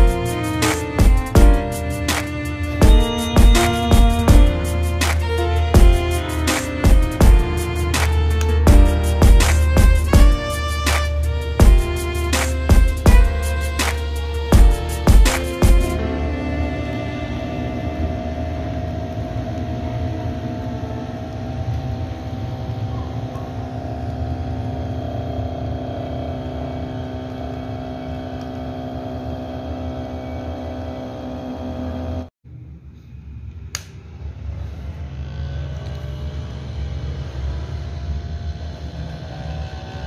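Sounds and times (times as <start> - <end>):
table saw motor whining: 1.8 - 32.3, 35.0 - 40.0
sharp click: 7.9 - 8.6.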